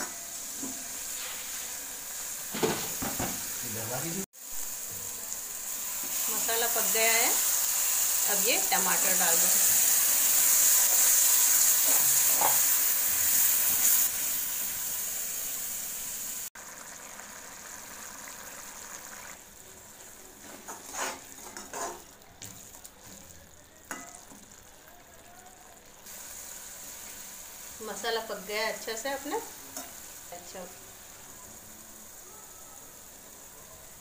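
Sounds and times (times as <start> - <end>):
bubbling sizzle: 0.0 - 34.0
puree sizzling in hot oil: 0.0 - 34.0
spatula scraping a metal pan: 20.4 - 22.1.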